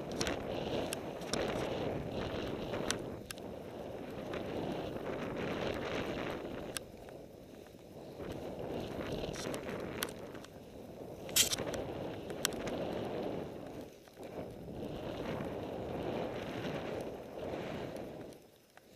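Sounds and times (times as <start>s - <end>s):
snowboard scraping over snow: 0.0s - 18.9s
sharp clicks: 11.3s - 11.8s.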